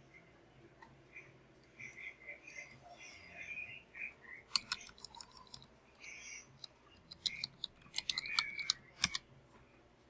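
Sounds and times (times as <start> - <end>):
keyboard keys clicking: 7.0 - 9.2.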